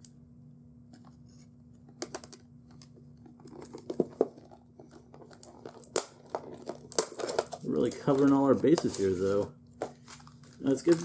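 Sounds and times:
plastic packaging tearing and crinkling: 5.2s - 11.0s.

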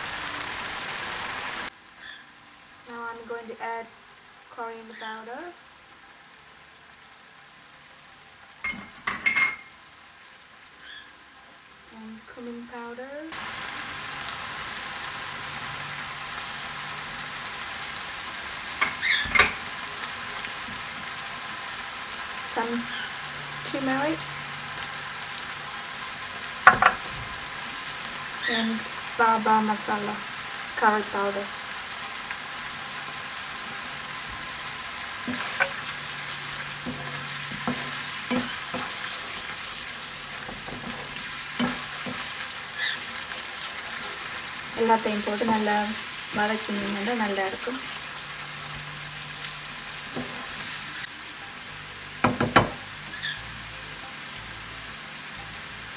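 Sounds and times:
paste sizzling in a pan: 0.0s - 55.9s
spatula scraping pan: 36.6s - 39.7s.

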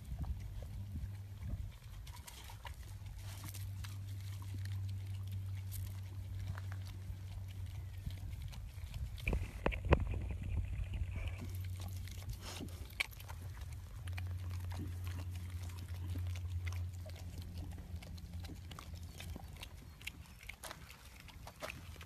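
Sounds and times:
animals licking and slurping: 0.0s - 22.0s
steady low hum: 0.0s - 22.0s.

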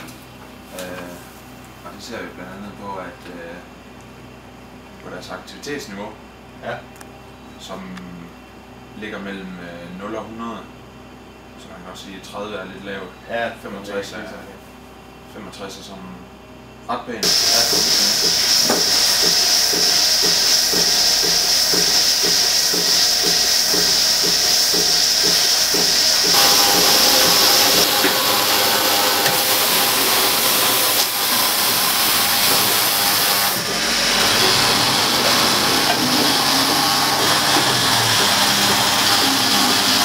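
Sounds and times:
milking robot air hiss: 17.2s - 39.2s.

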